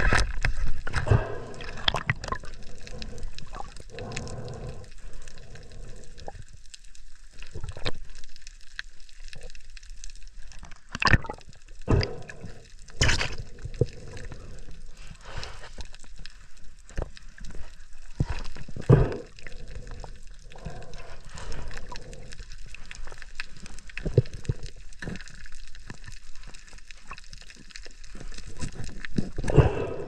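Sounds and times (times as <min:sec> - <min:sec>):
underwater clicks: 0:00.0 - 0:06.8, 0:10.6 - 0:14.8
water gurgling: 0:00.0 - 0:16.2, 0:16.9 - 0:30.0.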